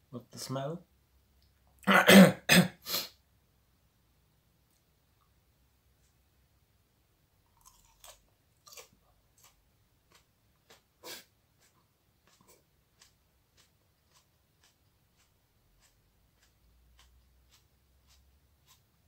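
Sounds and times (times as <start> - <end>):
person chewing: 7.4 - 19.0.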